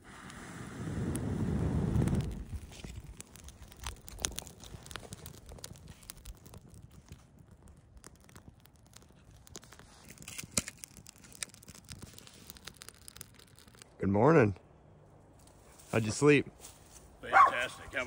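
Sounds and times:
sharp crack: 0:00.0 - 0:14.0
campfire embers crackling: 0:00.0 - 0:18.0.

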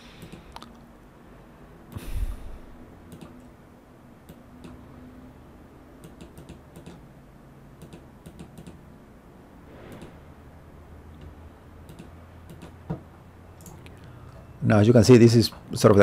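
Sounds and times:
faint low hum: 0:00.0 - 0:16.0
computer mouse clicking: 0:00.2 - 0:00.7, 0:03.1 - 0:03.5, 0:04.3 - 0:04.8, 0:06.0 - 0:07.0, 0:07.8 - 0:08.8, 0:11.2 - 0:12.8.

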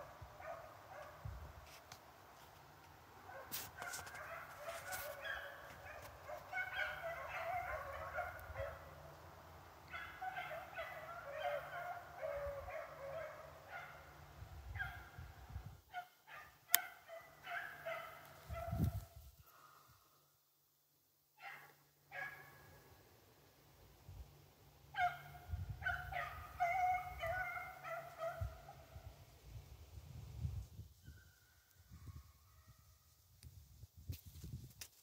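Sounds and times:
dogs baying faintly: 0:00.0 - 0:01.3, 0:03.2 - 0:09.2, 0:09.9 - 0:15.2, 0:15.9 - 0:20.1, 0:21.4 - 0:22.8, 0:24.9 - 0:29.1.

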